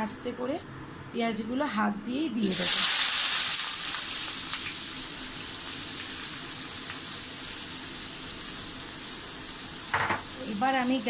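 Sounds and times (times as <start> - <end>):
onions sizzling in hot oil: 2.4 - 11.0.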